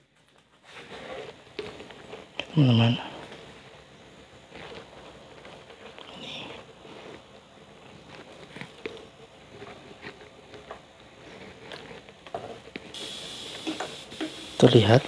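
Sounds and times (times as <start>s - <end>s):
high-pitched transformer hiss: 12.9s - 15.0s.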